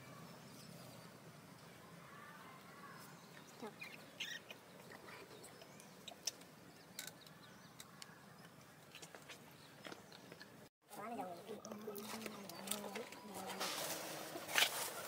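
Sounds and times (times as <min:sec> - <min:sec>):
faint short chirping calls: 0:02.7 - 0:09.0.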